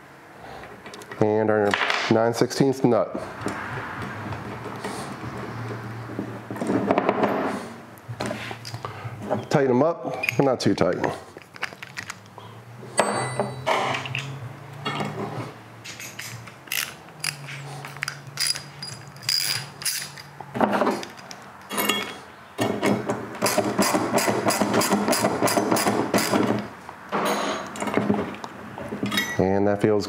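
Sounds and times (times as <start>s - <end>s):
metal tools clinking: 9.4s - 10.7s, 13.0s - 15.2s, 15.8s - 22.3s, 29.0s - 29.5s
socket ratchet clicking: 16.4s - 20.3s.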